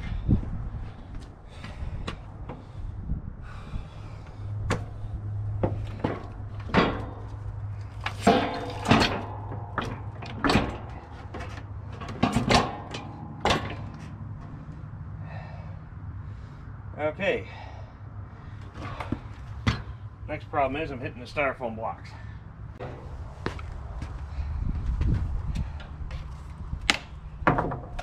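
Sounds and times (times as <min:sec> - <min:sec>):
metal frame knocking and clanking: 0:04.6 - 0:14.6, 0:22.8 - 0:23.2, 0:27.4 - 0:28.0.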